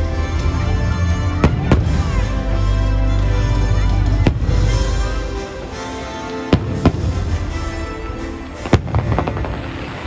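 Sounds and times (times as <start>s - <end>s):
fireworks crackling: 0.0s - 10.0s
music: 0.0s - 10.0s
fireworks banging: 3.2s - 10.0s.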